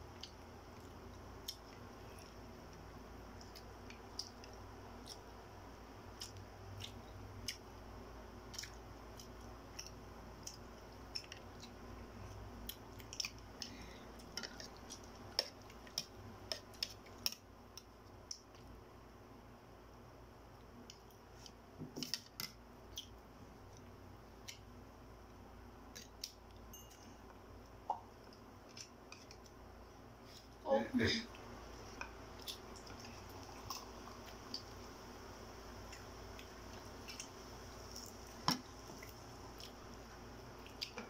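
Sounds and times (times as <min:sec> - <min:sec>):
chewing: 0:03.4 - 0:05.3, 0:06.1 - 0:07.6, 0:08.5 - 0:18.7, 0:31.8 - 0:34.8, 0:35.9 - 0:39.8
spoon clinking: 0:26.7 - 0:27.1.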